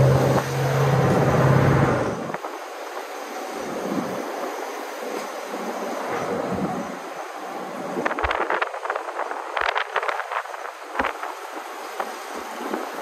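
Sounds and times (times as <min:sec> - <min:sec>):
low engine drone: 0:00.0 - 0:02.5
tyres rushing on road: 0:00.0 - 0:13.0
wind noise: 0:00.0 - 0:13.0.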